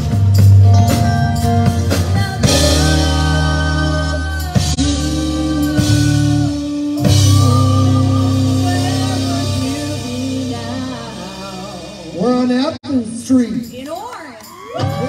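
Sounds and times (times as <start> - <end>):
live rock band playing: 0.0 - 15.0
woman singing: 1.9 - 11.8.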